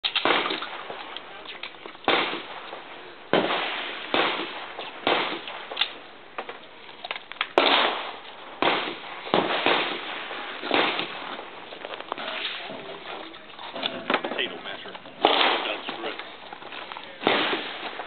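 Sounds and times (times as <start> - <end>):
handgun shots echoing: 0.0 - 1.2, 15.2 - 16.2.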